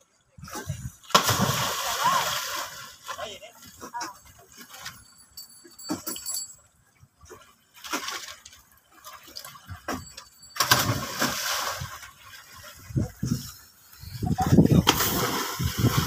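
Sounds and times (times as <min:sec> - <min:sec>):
water churning: 0:00.4 - 0:06.6, 0:07.2 - 0:16.0
big splash into water: 0:01.1 - 0:02.8, 0:10.6 - 0:12.1, 0:14.7 - 0:16.0.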